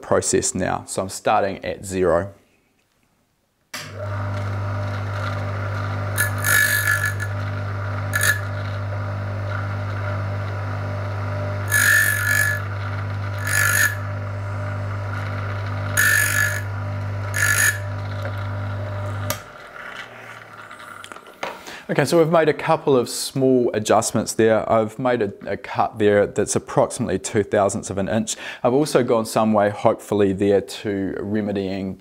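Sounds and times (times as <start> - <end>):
grinder motor humming: 3.8 - 21.4
bursts of grinding: 4.0 - 21.4.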